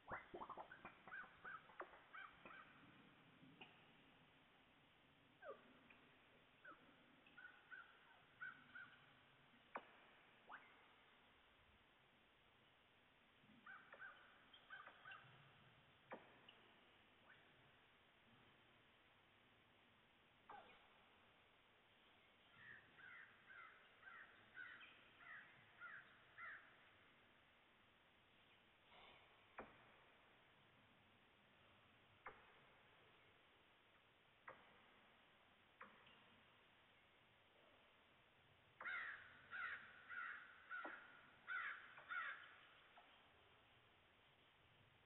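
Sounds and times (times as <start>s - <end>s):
distant bird calling: 0.0s - 3.0s, 6.6s - 11.1s, 13.6s - 15.4s, 22.4s - 27.0s, 38.8s - 43.2s
crow cawing: 22.6s - 26.6s, 38.8s - 42.5s.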